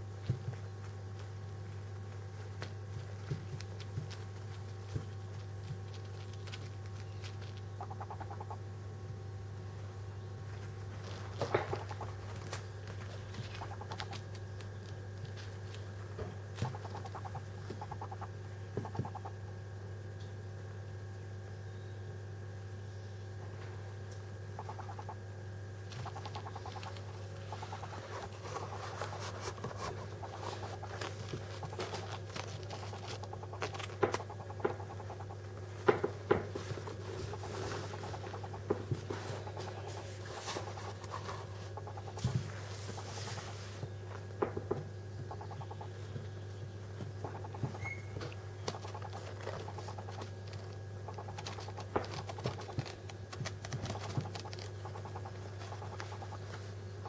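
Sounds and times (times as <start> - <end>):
steady low hum: 0.0 - 57.0
parrot chicks pulsing calls: 3.5 - 8.7, 11.4 - 15.0, 16.6 - 19.4, 24.5 - 25.2, 25.8 - 43.8, 45.1 - 57.0
claws scratching on towel: 25.9 - 35.3, 36.5 - 43.9, 48.7 - 56.7.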